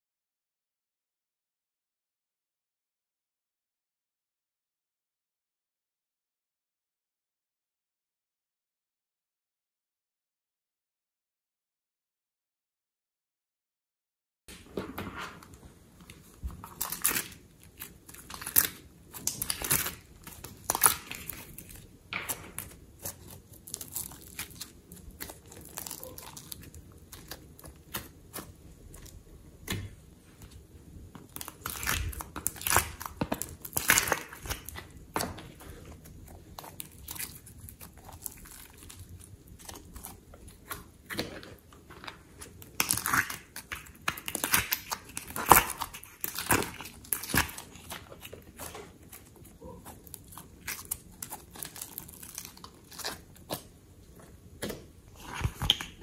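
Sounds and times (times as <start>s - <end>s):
slime crackling and squelching: 15.3s - 56.0s.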